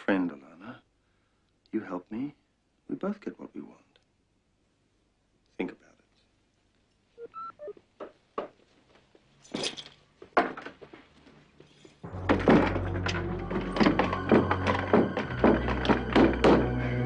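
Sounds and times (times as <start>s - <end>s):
soft footsteps: 7.5s - 16.6s
dramatic music with heavy beats: 12.1s - 17.0s.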